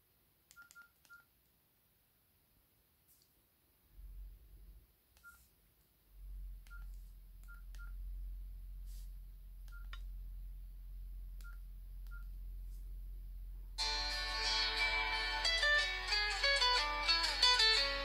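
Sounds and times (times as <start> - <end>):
low hum: 6.1 - 18.0.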